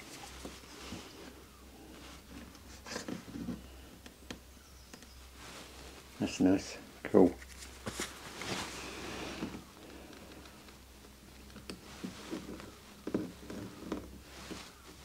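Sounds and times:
taps clicks and rustles of handling: 9.8s - 14.7s.

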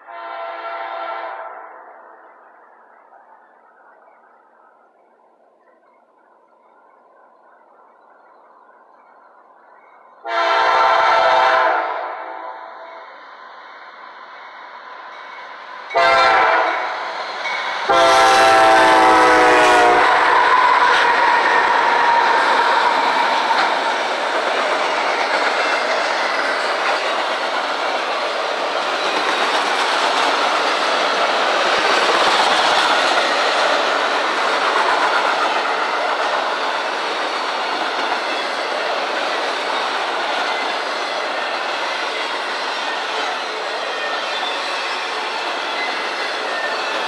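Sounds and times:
train rumbling past: 0.0s - 47.0s
locomotive horn blasts: 0.1s - 1.7s, 10.2s - 12.9s, 15.9s - 16.9s, 17.9s - 20.4s.

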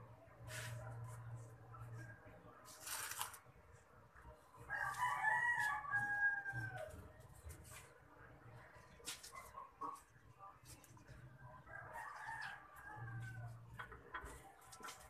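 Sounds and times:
rooster crowing: 4.7s - 6.9s, 11.7s - 13.6s.

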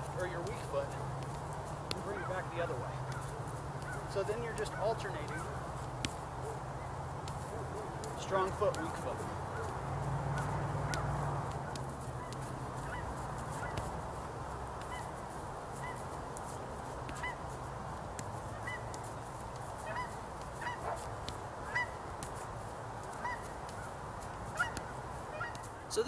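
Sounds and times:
geese honking: 3.0s - 5.6s, 12.2s - 13.8s, 14.8s - 15.2s, 15.8s - 16.0s, 17.1s - 17.4s, 18.5s - 19.0s, 19.8s - 22.0s, 23.2s - 23.9s, 24.5s - 25.7s.

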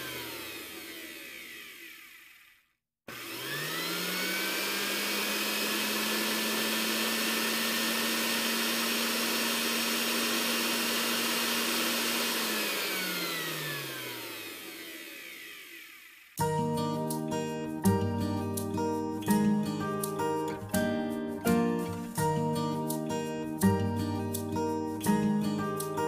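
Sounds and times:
blender motor grinding: 0.0s - 16.4s.

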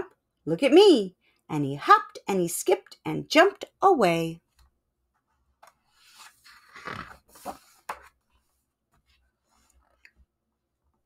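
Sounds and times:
paper page rustling: 5.8s - 10.0s.

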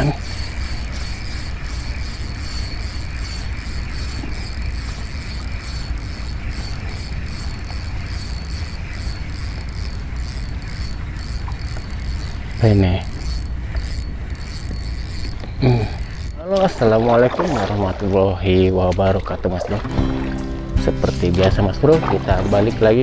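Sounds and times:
fishing reel gears whirring: 0.0s - 23.0s.

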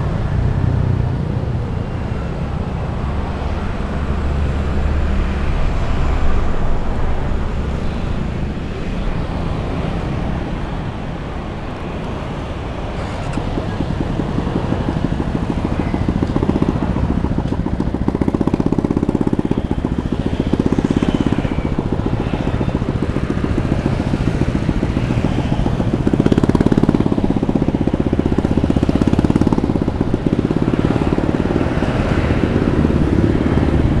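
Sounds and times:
motor scooter engine running: 12.4s - 34.0s.

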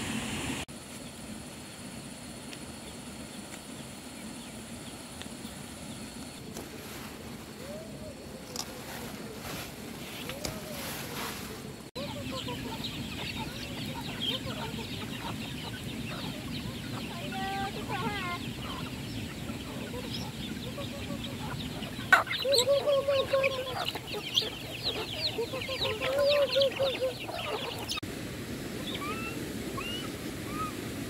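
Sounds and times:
hens clucking: 7.6s - 28.0s
chicks cheeping: 12.0s - 28.0s.

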